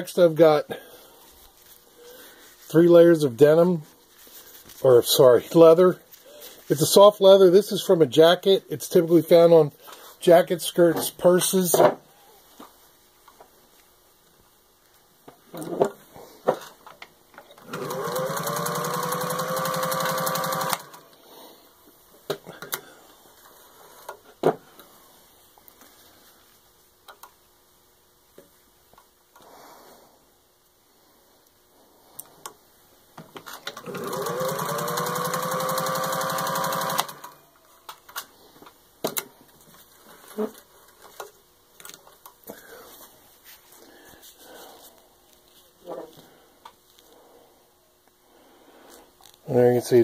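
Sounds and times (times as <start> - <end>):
sewing machine stitching: 17.6 - 21.2, 33.7 - 37.4.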